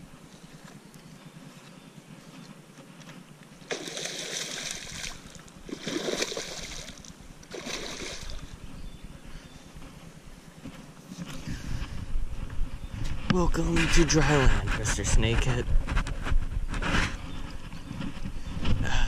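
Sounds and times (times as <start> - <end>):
fish splashing in water: 3.6 - 8.5.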